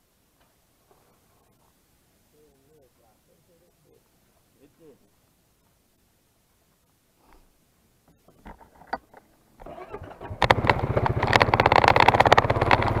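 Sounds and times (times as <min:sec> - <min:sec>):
small clicks and knocks: 0:08.1 - 0:09.4
quad engine starting and running: 0:09.6 - 0:13.0.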